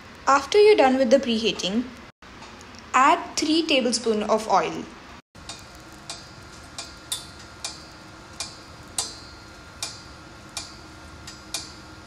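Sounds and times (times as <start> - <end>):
air fryer low hum: 0.0 - 12.0
air fryer metallic ticking: 5.4 - 12.0.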